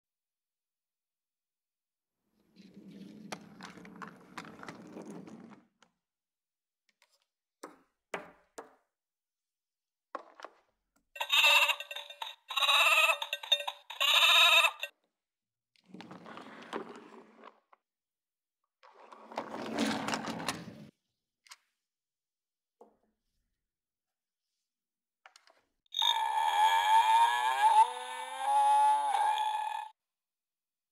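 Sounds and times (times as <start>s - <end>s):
recorded sheep bleats: 11.2s - 14.9s
wooden toy pieces rolling and knocking: 11.2s - 14.9s.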